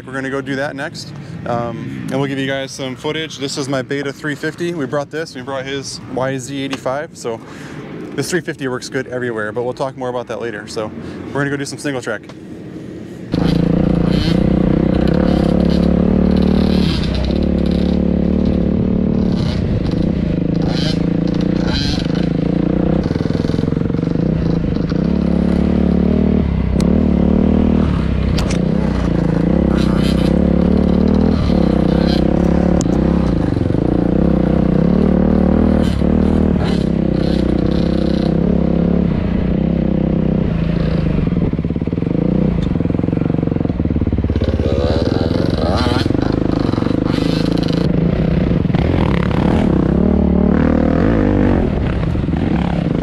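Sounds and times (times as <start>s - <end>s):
dirt bike engine: 13.2s - 53.0s
bike clacks and scrapes: 35.8s - 38.4s.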